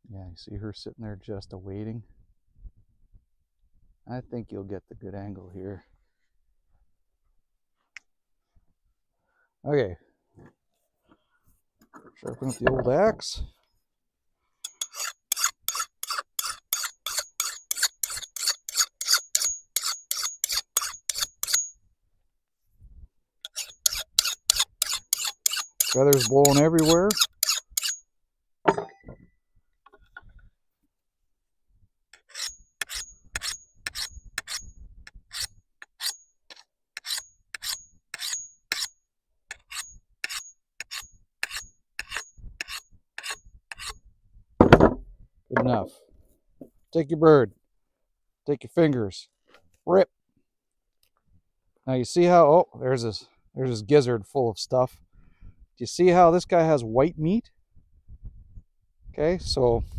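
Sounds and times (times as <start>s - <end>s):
hatchet blade being sharpened: 14.6s - 21.7s, 23.5s - 28.0s, 32.2s - 34.7s, 35.3s - 38.9s, 39.5s - 44.0s.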